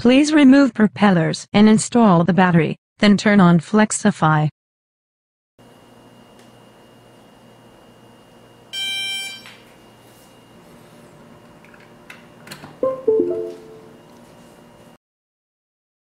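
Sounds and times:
electronic beep: 12.8s - 13.9s
stepped computer chime: 12.8s - 14.0s.

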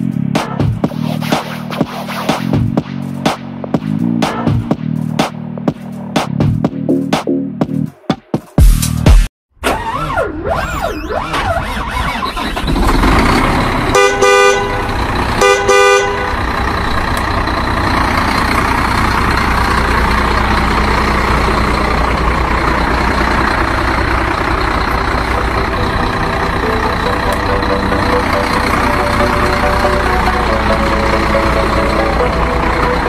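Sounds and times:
truck engine running: 0.0s - 7.7s, 11.6s - 33.0s
two-tone horn blasts: 13.7s - 16.6s.

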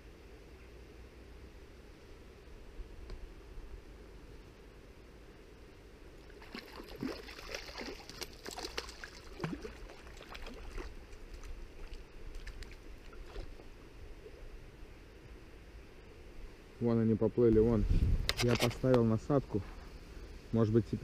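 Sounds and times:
river water splashing and gurgling: 6.3s - 14.5s.

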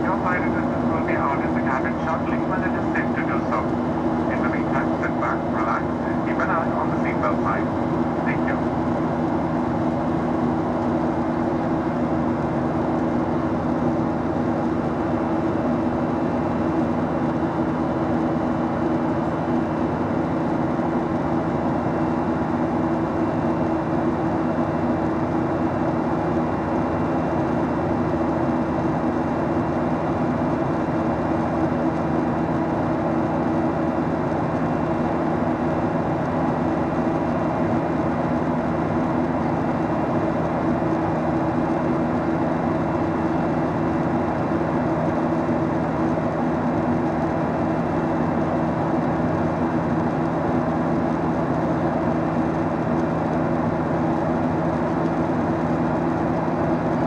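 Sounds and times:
low hums: 0.0s - 12.0s
jet engines and airflow rush: 0.0s - 57.0s.

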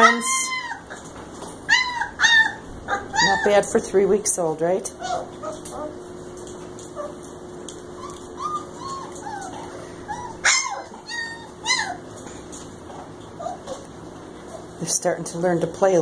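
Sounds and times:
puppy yelps: 0.0s - 3.6s, 5.0s - 6.0s, 6.9s - 7.2s, 8.0s - 12.1s, 13.4s - 13.8s
puppies whimpering and squeaking: 0.0s - 14.8s.

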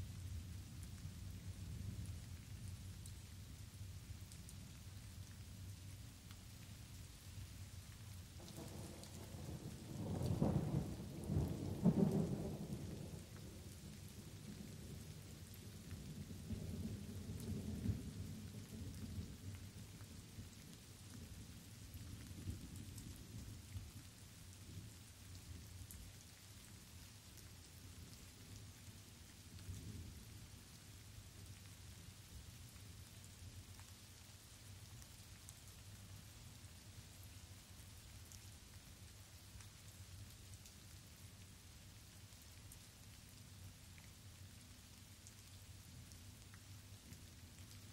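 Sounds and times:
light rain falling: 0.0s - 47.9s
thunder rumbling: 8.4s - 13.6s.

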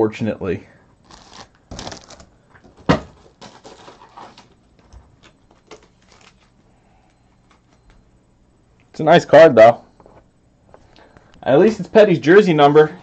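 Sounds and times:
card wrappers rustling and crinkling: 1.0s - 6.6s.

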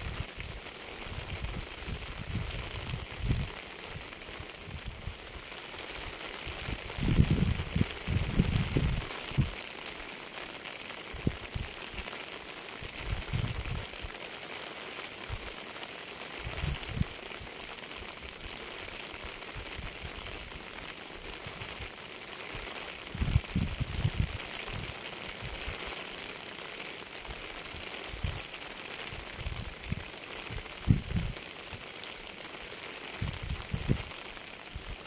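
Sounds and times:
steady rain falling: 0.0s - 35.0s.

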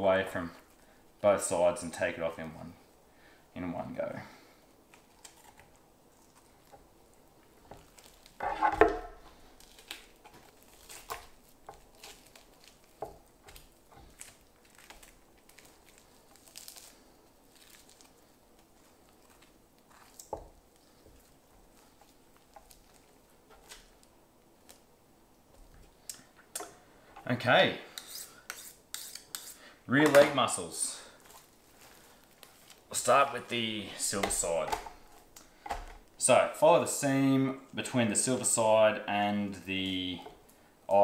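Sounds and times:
knife scraping meat: 27.9s - 29.6s.

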